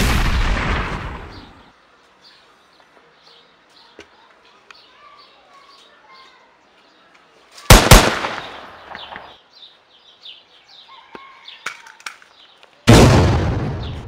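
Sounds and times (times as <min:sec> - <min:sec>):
birds chirping: 0:01.0 - 0:12.8
echoing gunshots: 0:07.7 - 0:09.4, 0:12.9 - 0:14.0.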